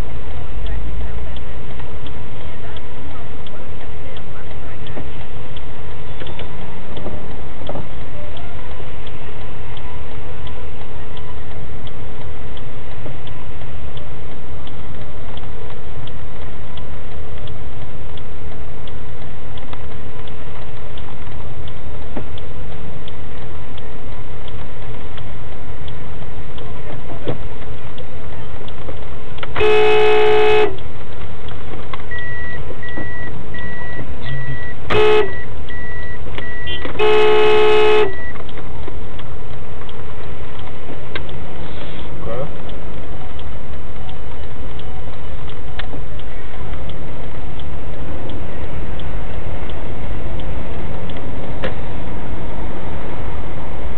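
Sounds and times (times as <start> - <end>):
car cabin low rumble: 0.0 - 53.9
car horn honking: 29.6 - 30.9, 34.2 - 38.4
high beep: 32.1 - 37.0, 38.0 - 38.4.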